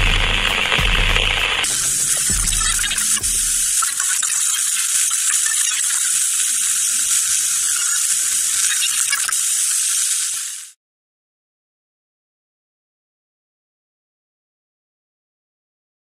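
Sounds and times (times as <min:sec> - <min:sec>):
static hiss: 0:00.0 - 0:10.8.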